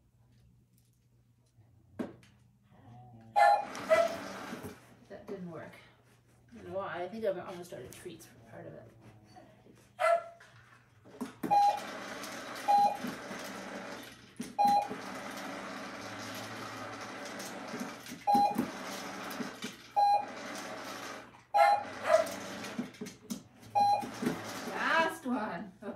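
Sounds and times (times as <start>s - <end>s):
short electronic beeps: 23.8s - 24.1s.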